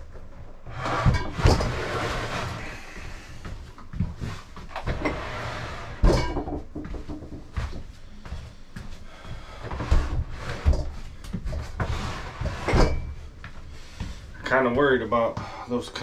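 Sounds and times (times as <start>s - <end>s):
knocks and clatter in cabinet: 6.0s - 7.6s.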